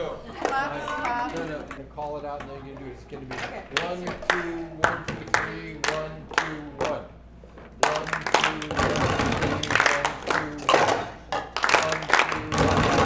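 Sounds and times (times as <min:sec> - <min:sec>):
voices singing: 0:00.0 - 0:01.8
people clapping in rhythm: 0:00.4 - 0:01.8, 0:03.7 - 0:07.1, 0:07.8 - 0:13.0.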